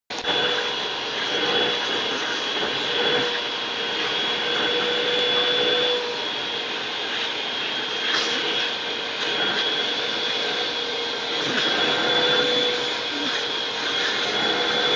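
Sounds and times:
vacuum cleaner running: 0.1s - 14.9s
dog biting at vacuum nozzle: 8.0s - 10.6s, 11.2s - 14.9s.

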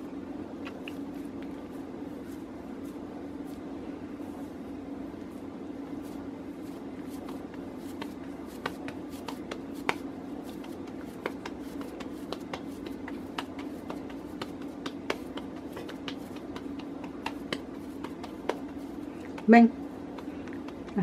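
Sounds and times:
hands squeezing mashed potato: 5.2s - 21.0s.

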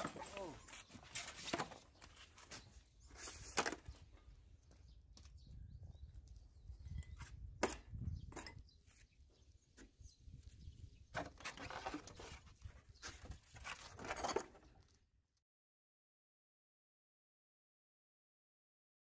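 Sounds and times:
low wind rumble on microphone: 4.2s - 11.2s.

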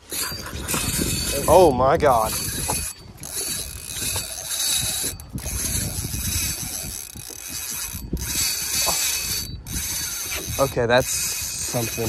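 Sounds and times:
fishing reel drag clicking: 0.0s - 12.0s.

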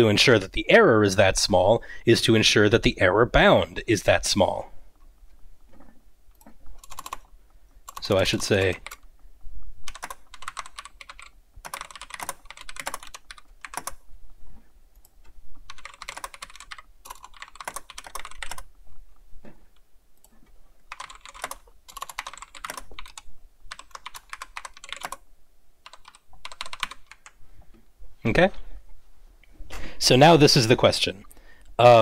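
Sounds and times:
typing on keyboard: 6.8s - 7.3s, 7.9s - 9.0s, 9.9s - 14.0s, 15.7s - 18.7s, 20.9s - 25.2s, 25.8s - 27.4s.

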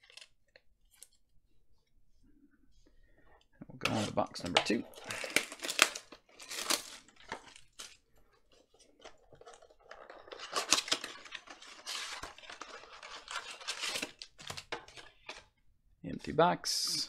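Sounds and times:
cardboard box tearing: 5.0s - 7.9s, 9.5s - 15.0s.

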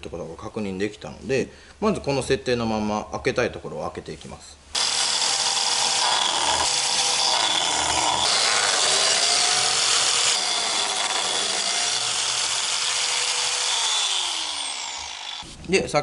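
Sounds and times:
biscuit joiner cutting wood: 4.8s - 15.5s.

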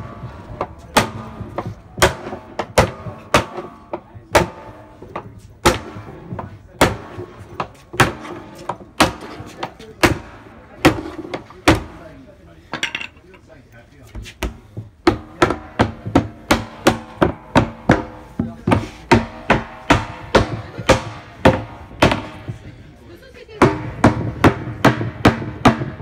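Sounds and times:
hammer knocking on wooden barrel: 14.4s - 22.6s, 23.6s - 26.0s.

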